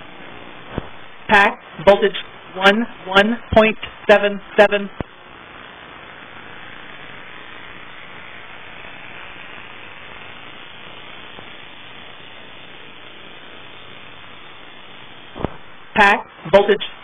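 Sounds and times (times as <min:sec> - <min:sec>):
steady static hiss: 0:00.0 - 0:17.0.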